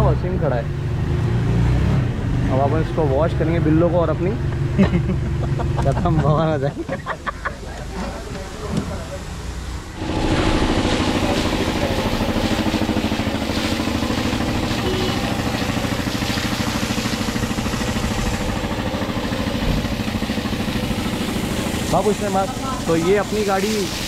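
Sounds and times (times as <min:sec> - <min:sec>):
pressure washer motor hum: 0:06.8 - 0:24.0
hiss of water spray: 0:08.5 - 0:24.0.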